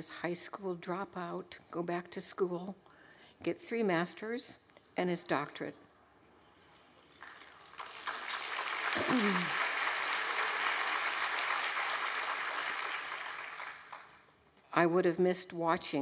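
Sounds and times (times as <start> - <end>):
audience applauding: 7.2 - 14.2
person calling out: 9.0 - 9.5.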